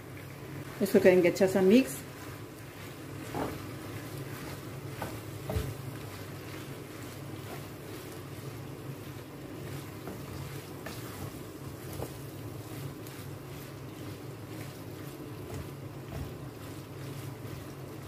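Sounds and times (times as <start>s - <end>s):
spoon scraping and knocking pan: 2.9s - 8.2s, 9.6s - 13.2s.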